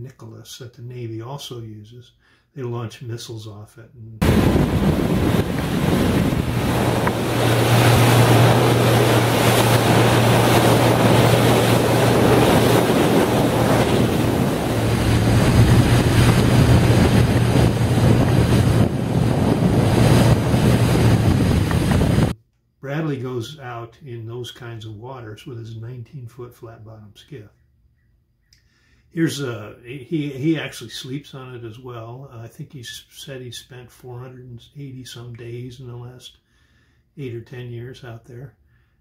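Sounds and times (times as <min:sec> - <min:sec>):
outboard motor humming: 0:04.2 - 0:22.3
water rushing past hull: 0:04.2 - 0:22.4
wind noise on microphone: 0:04.2 - 0:22.4.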